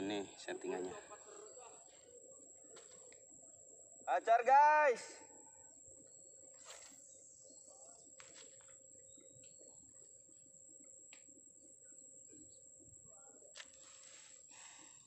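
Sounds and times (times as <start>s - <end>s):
bird chirps: 5.2s - 14.0s.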